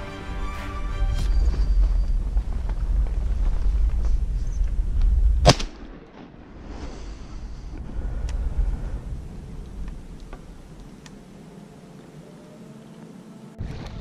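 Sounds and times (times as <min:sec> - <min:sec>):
heavy low rumble: 0:00.0 - 0:05.5, 0:06.5 - 0:12.0
shotgun shot: 0:05.4 - 0:06.4.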